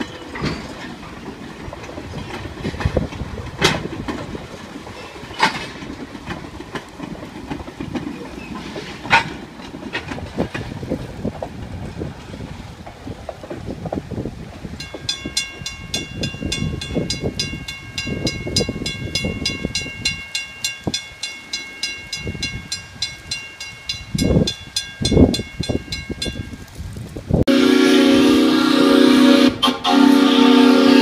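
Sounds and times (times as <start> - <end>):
railroad crossing bell ringing: 14.8 - 26.8.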